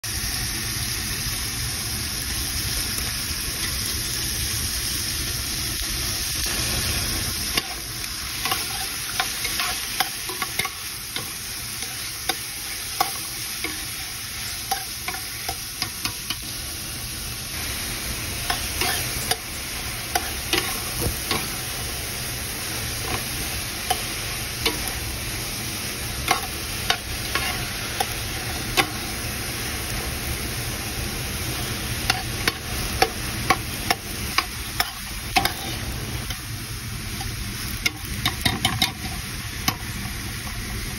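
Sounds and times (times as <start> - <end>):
vegetables sizzling in a pan: 0.0 - 40.9
spoon scraping a pan: 7.4 - 16.5, 18.4 - 19.5, 20.1 - 21.7, 26.2 - 29.2, 32.0 - 36.4, 37.2 - 39.9.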